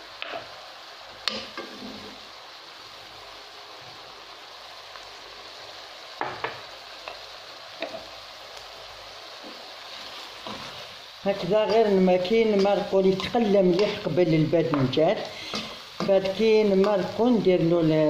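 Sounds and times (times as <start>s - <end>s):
food sizzling in oil: 0.0s - 18.0s
wooden spoon knocking on pan: 6.2s - 6.6s, 14.7s - 15.0s.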